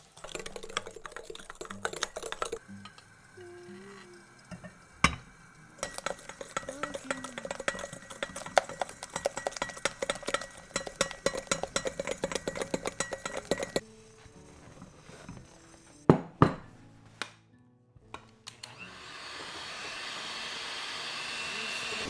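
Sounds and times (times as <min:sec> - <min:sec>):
whisk clinking against glass bowl: 0:00.2 - 0:02.6, 0:05.8 - 0:13.8.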